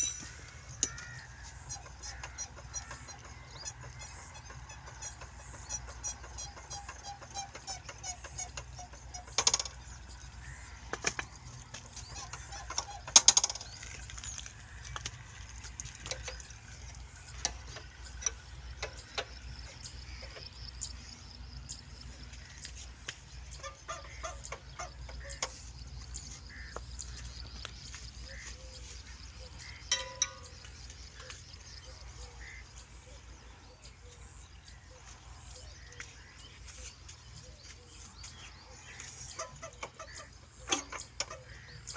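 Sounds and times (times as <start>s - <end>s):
low steady rumble: 0.0s - 40.6s
metallic clicks and knocks: 4.6s - 9.9s, 10.9s - 14.0s, 14.9s - 20.6s, 29.7s - 31.4s.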